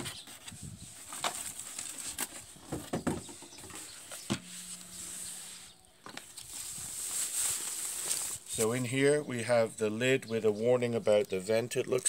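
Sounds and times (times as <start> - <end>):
plastic bag rustling: 3.8 - 8.9.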